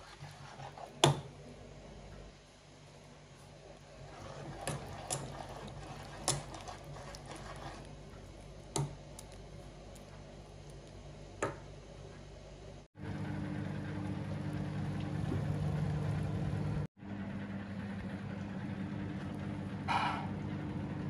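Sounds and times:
spoon squelching in thick batter: 4.1 - 8.0.

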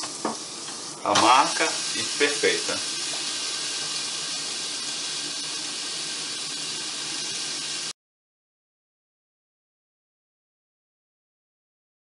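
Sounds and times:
zucchini sizzling on a grill: 0.0 - 7.9.

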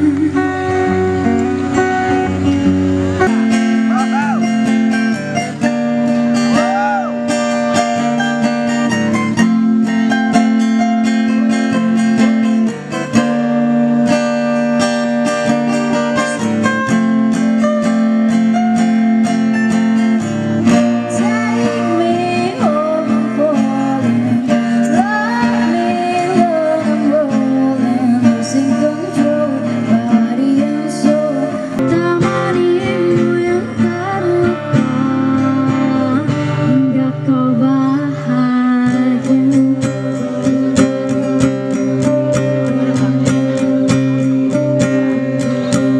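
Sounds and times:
woman singing into a microphone: 0.0 - 8.8, 20.6 - 45.9
acoustic guitar strumming: 0.0 - 45.9.

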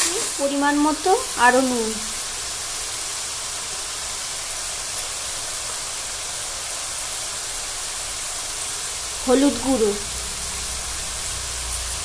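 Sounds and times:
leaves frying in oil sizzling: 0.0 - 12.0.

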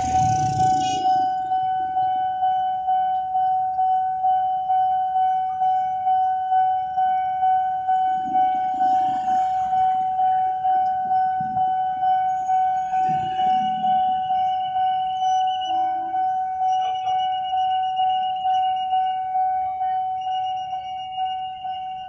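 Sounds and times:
motorcycle engines running: 0.0 - 1.5
level crossing warning bell: 0.0 - 22.0.

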